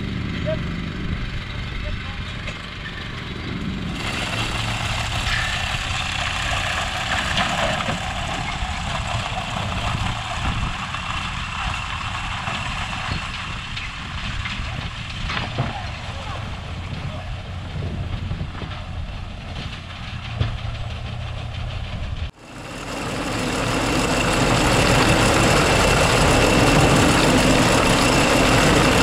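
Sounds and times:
engine running: 0:00.0 - 0:29.0
loud rushing hiss: 0:03.9 - 0:14.0.

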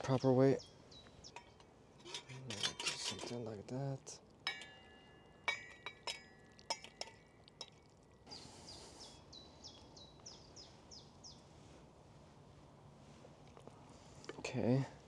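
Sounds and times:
metal pots clinking: 0:01.2 - 0:07.9.

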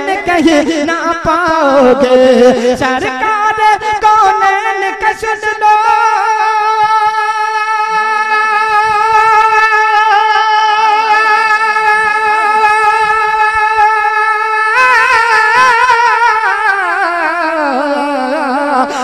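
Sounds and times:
person singing unaccompanied: 0:00.0 - 0:19.0.

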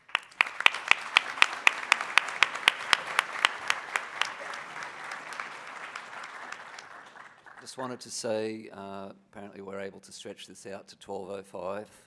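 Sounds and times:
sharp close claps: 0:00.0 - 0:07.9
audience applauding: 0:00.0 - 0:08.0.

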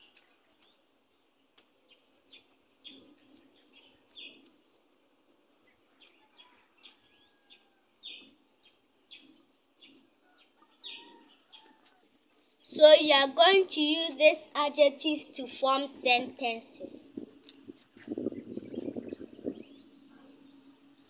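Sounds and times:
faint bird chirps: 0:17.2 - 0:21.0.

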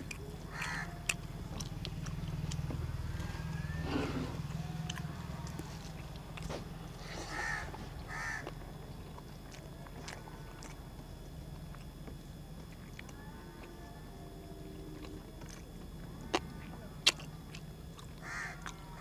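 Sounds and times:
crow cawing: 0:00.5 - 0:01.2, 0:07.0 - 0:08.6, 0:18.2 - 0:19.0.

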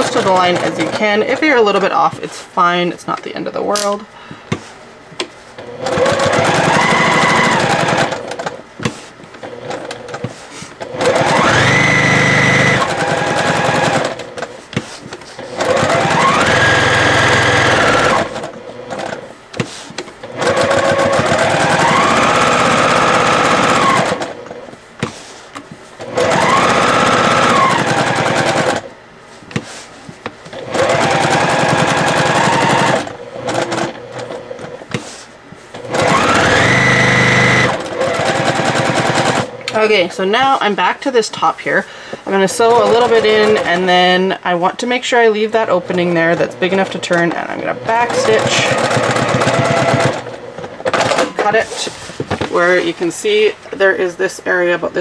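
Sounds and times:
sewing machine motor whining: 0:05.8 - 0:08.6, 0:09.4 - 0:14.5, 0:15.4 - 0:19.2, 0:20.2 - 0:24.4, 0:26.0 - 0:28.9, 0:30.6 - 0:34.4, 0:35.8 - 0:39.5, 0:47.7 - 0:51.4.

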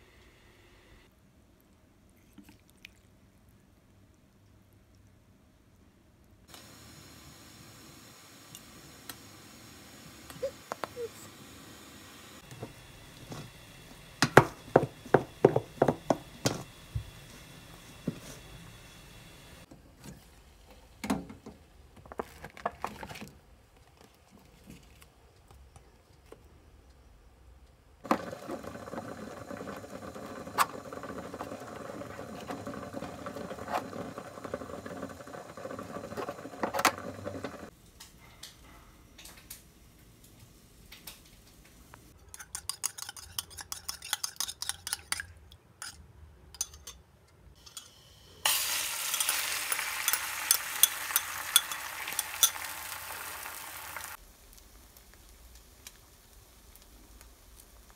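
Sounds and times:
egg sizzling in frying pan: 0:06.6 - 0:19.7, 0:28.0 - 0:37.7, 0:47.6 - 0:57.9
utensils clinking: 0:42.2 - 0:46.0, 0:46.6 - 0:47.0, 0:47.6 - 0:53.0.

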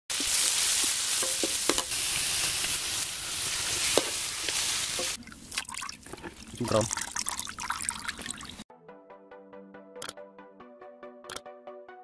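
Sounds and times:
spice paste sizzling in oil: 0:00.1 - 0:05.2.

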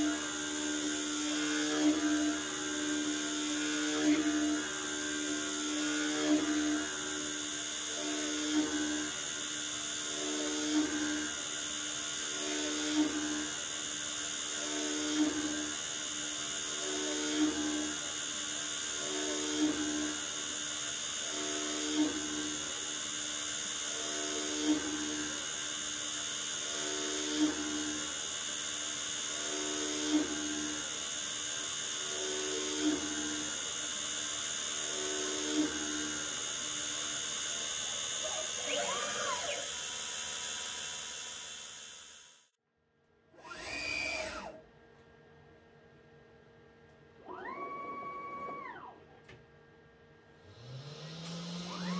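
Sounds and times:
lathe cutter whine: 0:34.8 - 0:42.1, 0:50.6 - 0:51.9.

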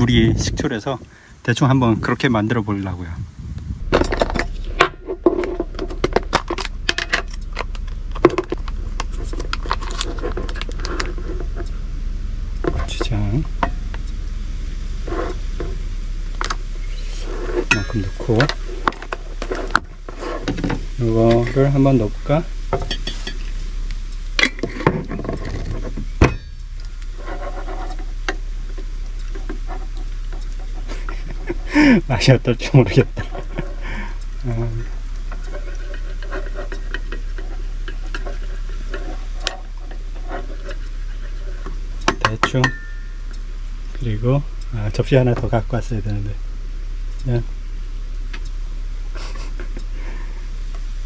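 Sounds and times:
low hum: 0:00.0 - 0:51.0.

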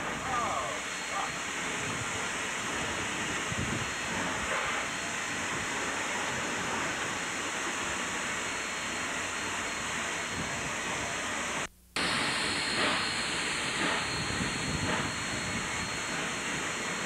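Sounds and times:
steam locomotive cab hiss: 0:00.0 - 0:17.0
locomotive exhaust beats: 0:12.0 - 0:17.0.

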